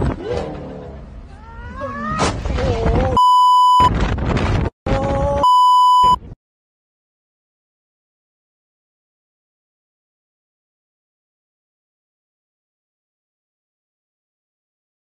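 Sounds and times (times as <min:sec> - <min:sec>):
censor bleeps: 0:03.2 - 0:03.9, 0:05.4 - 0:06.2.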